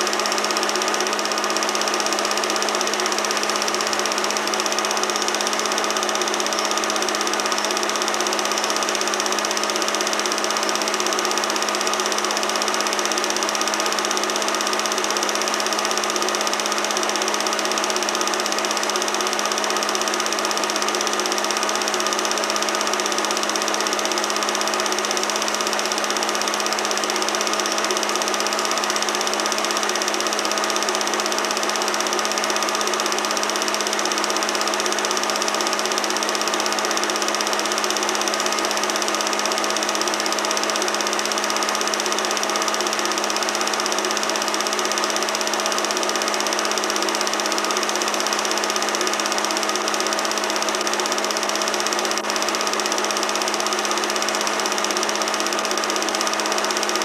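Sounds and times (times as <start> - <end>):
film projector whirring: 0.0 - 57.0.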